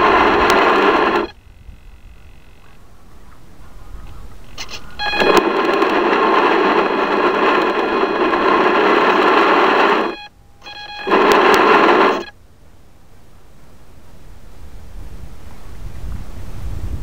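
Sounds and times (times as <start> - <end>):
small electric motor whining: 0.0 - 2.9, 4.3 - 12.3.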